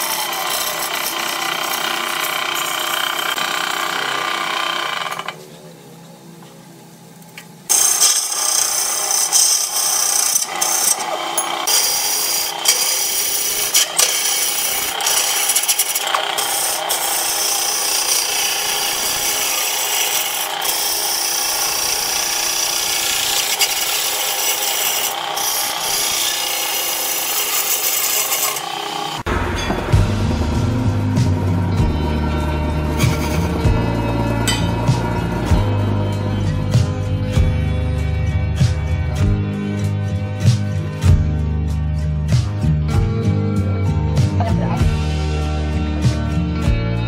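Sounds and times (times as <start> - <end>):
electric motor running: 0.0 - 5.4, 7.7 - 29.3, 30.0 - 37.4
turning tool scraping wood on lathe: 0.0 - 5.4, 7.7 - 29.3.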